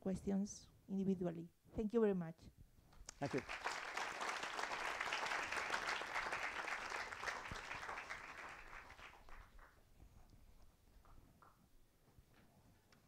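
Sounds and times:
audience applauding: 0:03.1 - 0:09.8.

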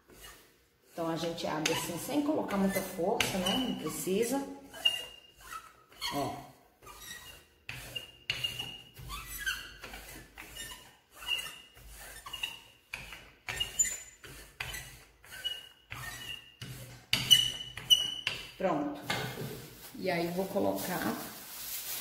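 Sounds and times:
rolling pin rolling dough: 0:00.0 - 0:20.8
short high squeaks: 0:04.7 - 0:12.8, 0:13.5 - 0:16.6.

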